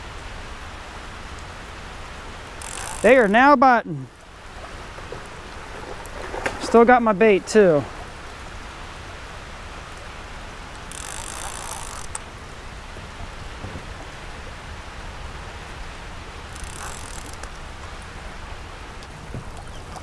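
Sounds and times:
creek water flowing: 0.0 - 20.0
rain hiss: 0.0 - 20.0
fishing reel clicking and buzzing: 2.6 - 3.1, 10.9 - 12.2, 16.5 - 17.5.

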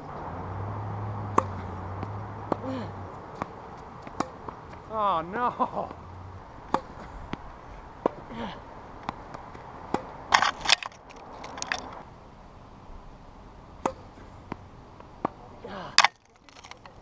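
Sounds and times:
tennis ball popping off rackets: 1.3 - 4.9, 6.6 - 8.3, 9.0 - 12.0, 13.8 - 15.4
noisy scraping: 6.0 - 12.1.

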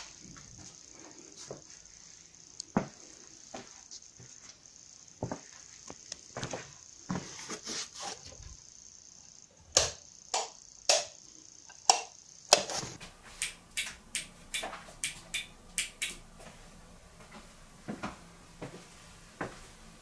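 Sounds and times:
light switch clicking: 11.8 - 12.7, 13.4 - 16.2.

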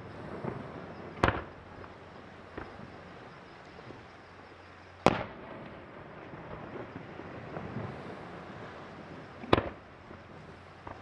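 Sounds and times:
firework booms: 0.0 - 1.9, 2.5 - 3.0, 5.0 - 11.0
faint firework pops: 0.5 - 1.6, 2.6 - 2.8, 5.1 - 5.7, 9.4 - 10.2, 10.8 - 11.0.

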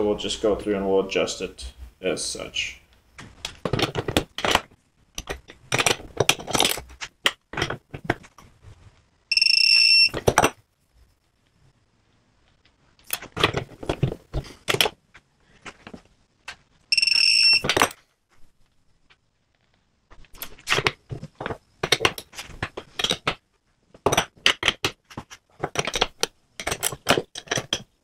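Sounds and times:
torque meter high beep: 9.3 - 10.1, 16.9 - 17.7.

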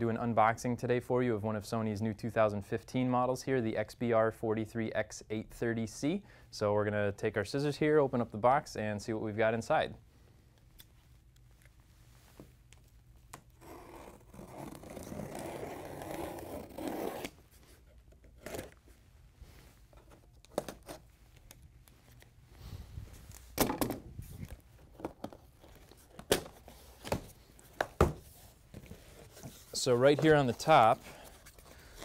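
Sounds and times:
cardboard knocks and scrapes: 26.6 - 30.5.

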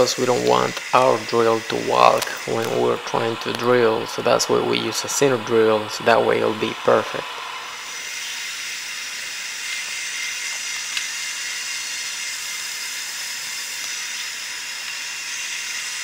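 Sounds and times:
drill cutting into aluminum: 0.0 - 16.0.

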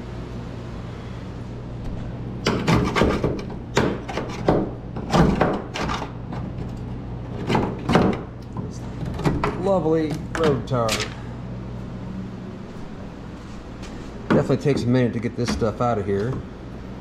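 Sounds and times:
hand tool scraping metal panel: 2.4 - 8.2.

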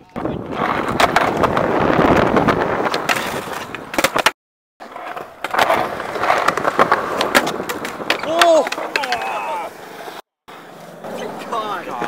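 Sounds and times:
skateboard wheels rolling on concrete: 0.0 - 12.0
skateboard clacks and knocks: 4.9 - 10.2.

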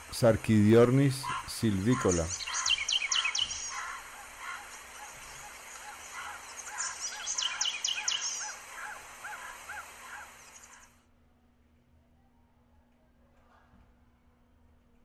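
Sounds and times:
steady hiss: 0.0 - 11.0
bird call notes: 1.2 - 10.9
high bird chirps: 1.9 - 10.9.

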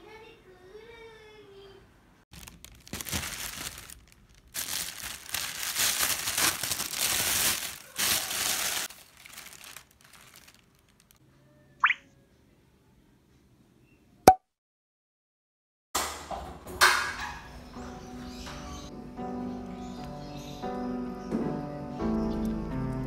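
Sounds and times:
plastic bag crinkling: 2.3 - 11.2
short rising tone blip: 11.8 - 12.0.

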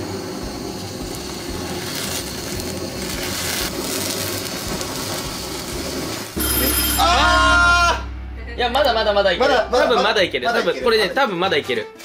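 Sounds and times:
gas torch hissing: 0.0 - 6.4.

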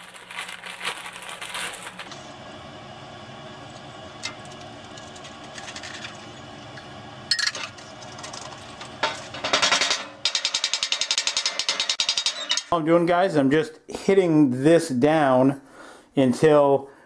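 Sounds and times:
plastic wrapping crinkling: 0.0 - 2.3.

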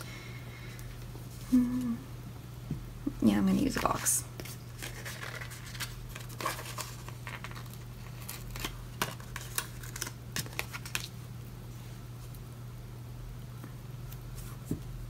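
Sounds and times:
sticker sheet crinkling: 3.7 - 11.2.

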